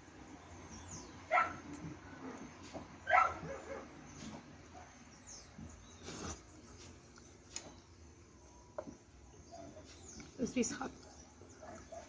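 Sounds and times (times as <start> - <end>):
dog barking: 1.3 - 1.6, 3.1 - 3.9, 11.6 - 12.0.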